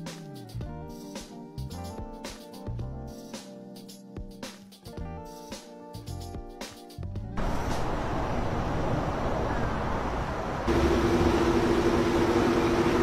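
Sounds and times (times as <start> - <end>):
engine and traffic noise: 7.4 - 13.0
steady hum: 7.4 - 13.0.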